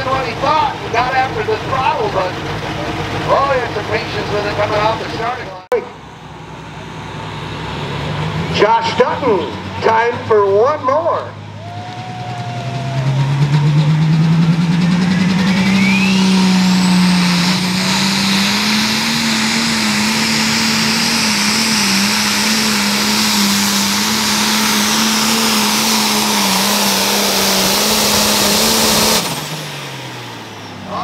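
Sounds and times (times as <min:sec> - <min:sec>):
diesel engine at full throttle: 0:00.0 - 0:31.0
turbo whine: 0:11.6 - 0:30.8.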